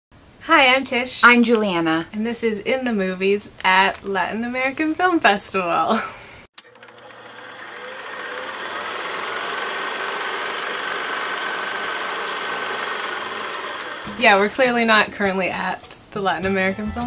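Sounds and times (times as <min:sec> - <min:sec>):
film projector clatter: 0:06.6 - 0:14.9.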